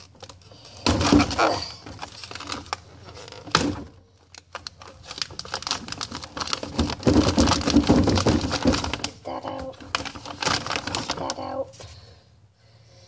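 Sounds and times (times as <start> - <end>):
clicks clatter and crinkling: 0.0 - 11.9.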